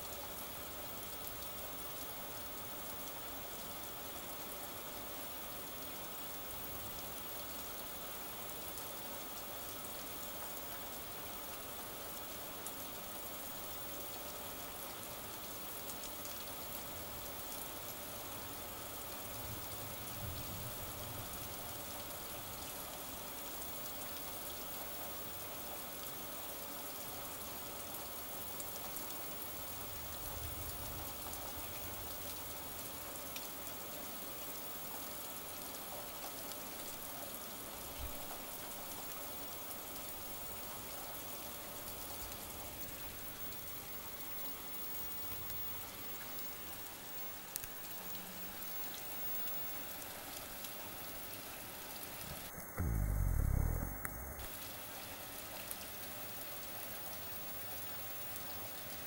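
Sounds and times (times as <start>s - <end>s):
steady rain falling: 0.0s - 59.0s
soft low rumbles: 52.3s - 54.5s.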